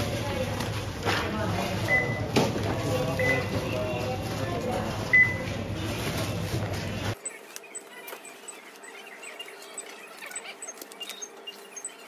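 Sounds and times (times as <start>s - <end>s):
dense background noise: 0.0s - 12.0s
barcode scanner beep: 3.2s - 3.8s, 5.1s - 5.5s, 7.2s - 12.0s
tiny high blips: 7.2s - 12.0s.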